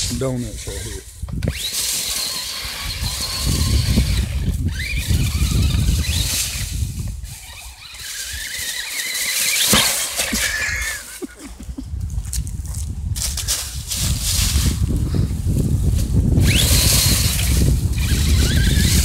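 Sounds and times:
toy truck motor whining: 0.5s - 11.3s, 16.3s - 19.0s.

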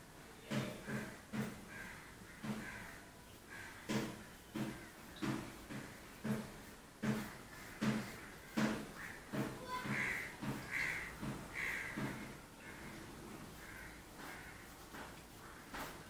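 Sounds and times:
crows cawing: 0.5s - 6.5s, 7.1s - 16.0s
short knocks: 3.8s - 13.0s.

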